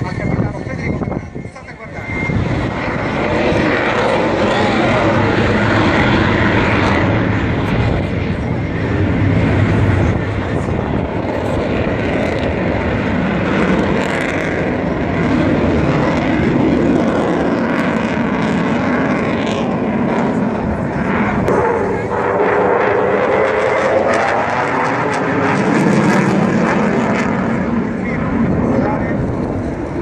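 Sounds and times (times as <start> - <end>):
jet fighter roar: 0.0 - 30.0.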